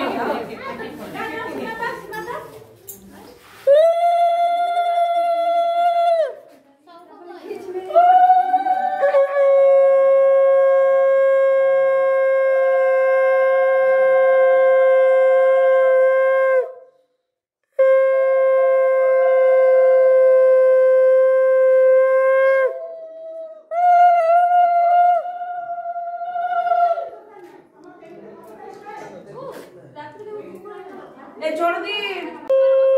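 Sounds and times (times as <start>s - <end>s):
wavering conch tone: 8.5s - 16.8s, 17.8s - 27.0s, 32.5s - 32.9s
conch shell blasts: 17.8s - 22.6s.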